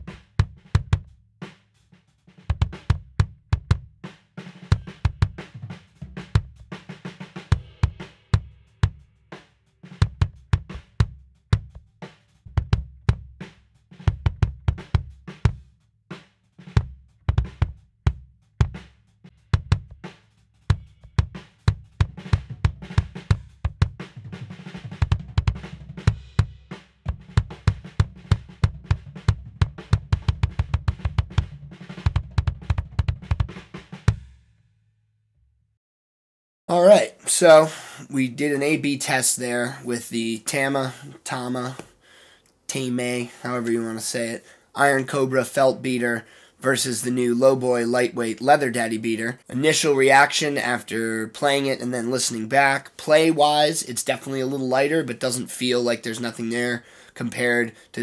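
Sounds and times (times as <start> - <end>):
kick drum strokes: 0.0 - 1.1, 2.4 - 4.0, 4.7 - 6.8, 7.4 - 9.0, 10.0 - 11.9, 12.5 - 15.7, 16.6 - 34.4.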